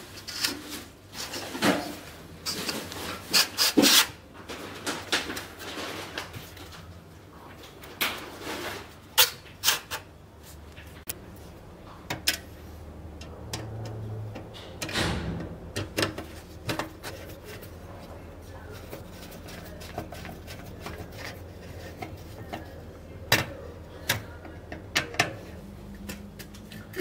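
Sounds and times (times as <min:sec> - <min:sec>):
metal knocks and scrapes: 0:13.2 - 0:23.6.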